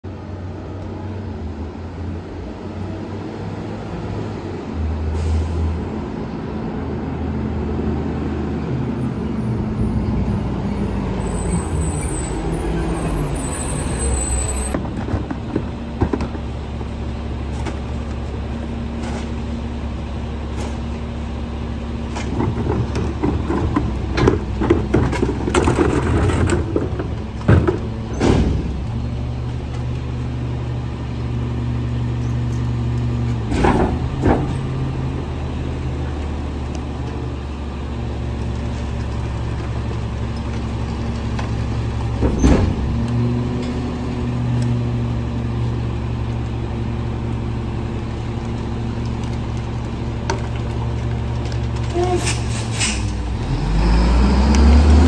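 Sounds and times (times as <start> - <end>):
garbage truck diesel engine: 0.0 - 55.0
high brake squeal: 10.7 - 14.8, 51.9 - 53.1
trash knocking and clattering: 14.7 - 19.5, 22.0 - 29.2, 33.3 - 34.9, 38.6 - 43.0.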